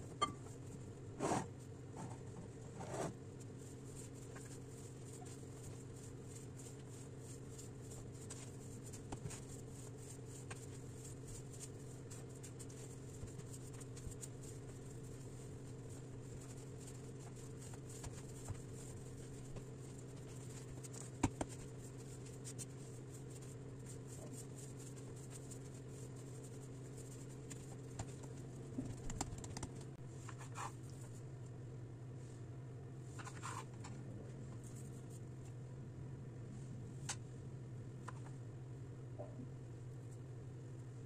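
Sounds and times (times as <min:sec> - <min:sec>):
hands kneading dough: 0:00.0 - 0:31.3
low electrical hum: 0:00.0 - 0:41.0.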